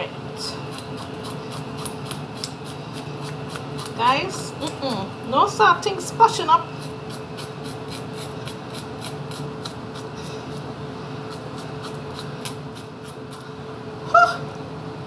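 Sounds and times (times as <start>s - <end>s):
steady low hum: 0.0s - 15.0s
knife scraping fish scales: 0.6s - 4.0s, 6.8s - 10.7s, 11.3s - 13.4s.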